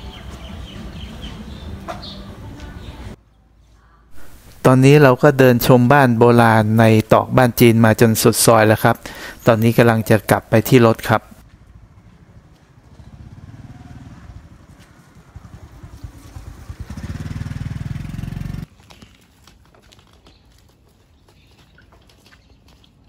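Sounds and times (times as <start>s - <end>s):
street sounds: 0.0s - 23.0s
motor scooter engine: 11.5s - 18.7s.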